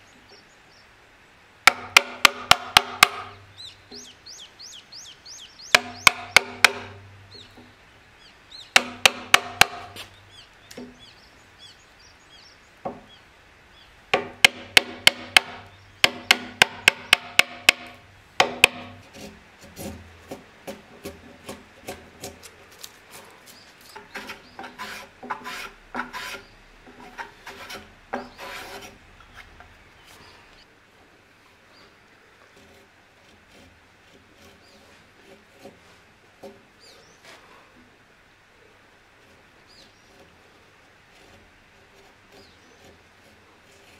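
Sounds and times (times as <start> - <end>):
hammer striking chisel into wood: 1.7 - 3.4, 5.7 - 7.0, 8.8 - 10.0, 14.2 - 19.0.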